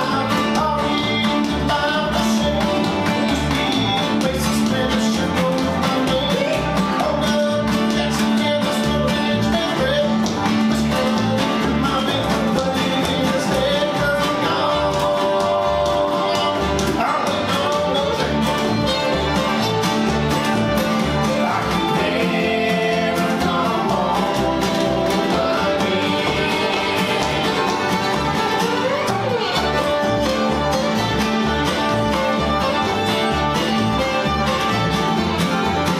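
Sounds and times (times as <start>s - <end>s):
bluegrass string band playing: 0.0s - 35.9s
fiddle sliding lines: 12.5s - 35.9s.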